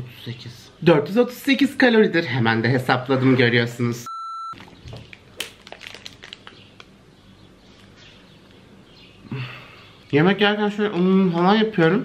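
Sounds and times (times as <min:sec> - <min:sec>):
plastic wrapper crinkling: 0:04.6 - 0:07.0.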